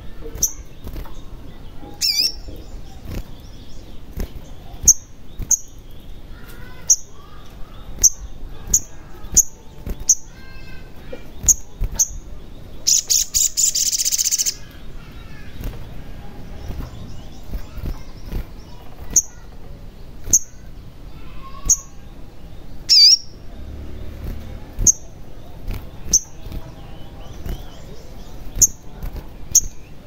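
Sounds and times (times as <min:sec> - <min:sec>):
sunbird calling: 0:00.0 - 0:23.6
harsh buzzing bird trill: 0:01.9 - 0:22.1, 0:22.8 - 0:30.0.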